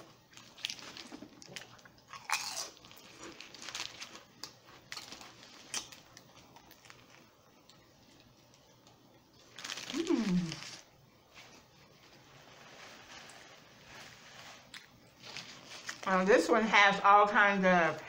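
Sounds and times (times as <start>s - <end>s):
crisp bread crunching: 0.0s - 16.3s
chewing: 0.4s - 7.8s.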